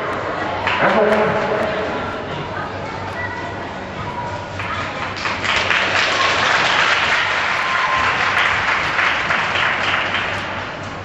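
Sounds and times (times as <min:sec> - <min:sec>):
audience applauding: 0:05.0 - 0:10.8.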